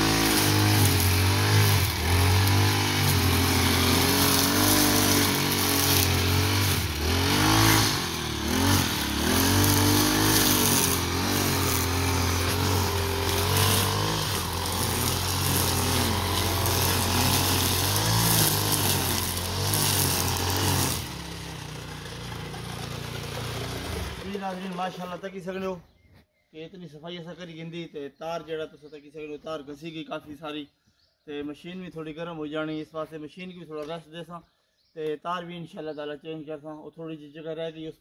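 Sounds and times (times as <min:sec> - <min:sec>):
brush cutter engine cutting grass: 0:00.0 - 0:25.1.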